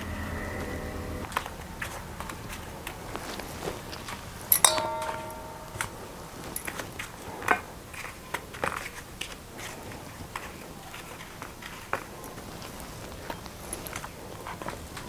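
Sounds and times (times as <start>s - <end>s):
steel plate clinking and ringing: 4.5s - 7.5s.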